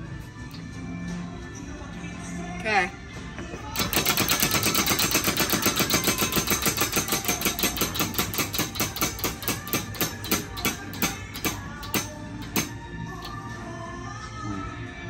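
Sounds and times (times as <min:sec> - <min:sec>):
animatronic prop mechanical clatter: 0:03.8 - 0:13.4.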